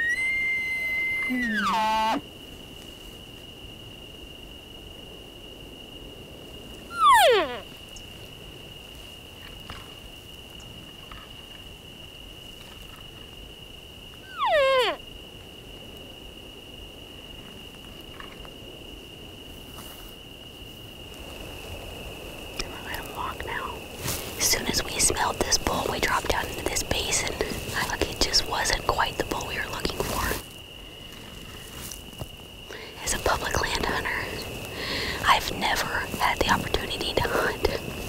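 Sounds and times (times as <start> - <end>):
elk calls: 0.0 - 2.2, 6.9 - 7.6, 14.3 - 15.0
faint high-pitched tone: 0.0 - 2.2
quiet outdoor background: 0.0 - 38.0.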